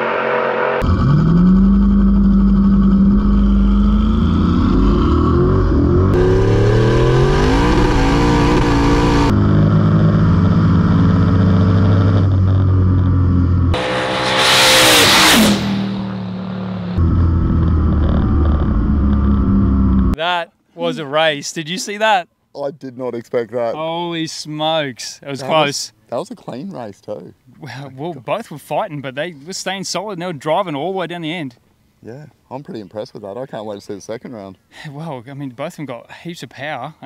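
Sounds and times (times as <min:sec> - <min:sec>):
drag car engine at full throttle: 0:00.0 - 0:20.2
car passing at speed: 0:13.7 - 0:17.3.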